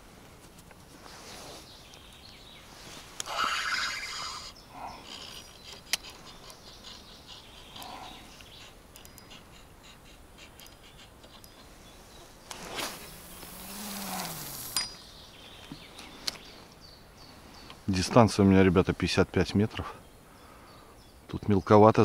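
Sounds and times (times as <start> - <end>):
fishing line running off reel: 3.2 - 4.5, 12.5 - 14.8
small handling clicks: 5.0 - 11.6.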